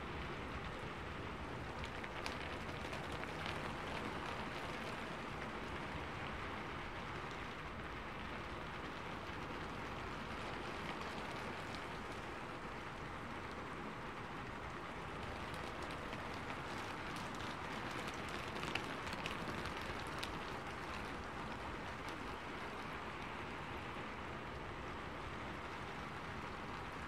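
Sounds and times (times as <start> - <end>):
steady hissing noise: 0.0 - 27.0.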